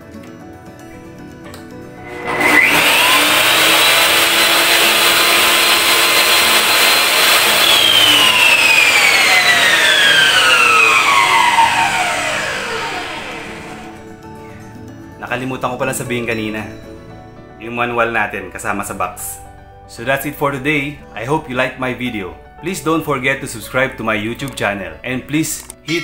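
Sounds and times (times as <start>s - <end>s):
table saw motor whine: 2.0s - 14.1s.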